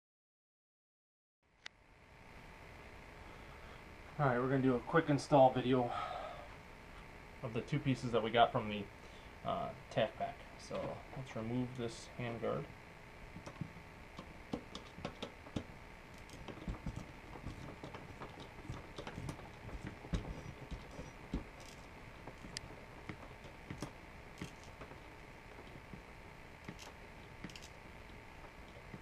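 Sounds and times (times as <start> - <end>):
rifle parts clicking and knocking: 13.4 - 25.0, 26.6 - 27.8.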